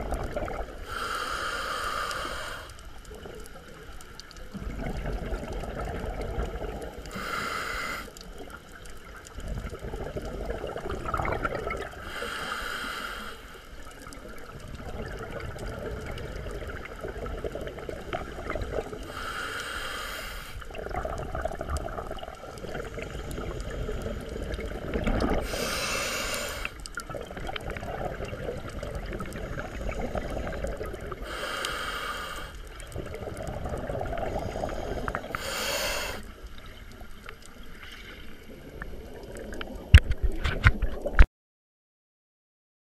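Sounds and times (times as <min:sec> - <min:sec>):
bubbly exhalations: 0:00.0 - 0:01.0, 0:04.5 - 0:07.5, 0:09.4 - 0:12.2, 0:20.7 - 0:31.4, 0:32.9 - 0:36.2
diver breathing through regulator: 0:00.8 - 0:02.9, 0:07.0 - 0:08.2, 0:11.9 - 0:13.8, 0:18.2 - 0:20.7, 0:22.6 - 0:26.9, 0:29.4 - 0:32.8, 0:33.9 - 0:36.4.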